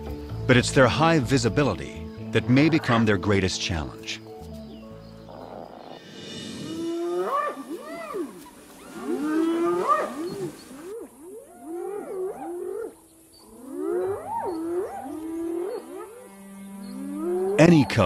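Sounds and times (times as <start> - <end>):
hyenas calling: 2.3 - 3.5, 5.2 - 18.0.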